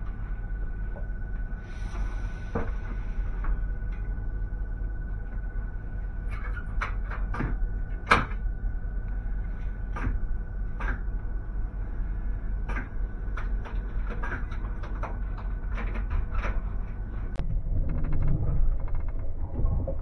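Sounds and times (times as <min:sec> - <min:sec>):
faint steady whine: 0:00.0 - 0:20.0
train rumbling: 0:07.6 - 0:20.0.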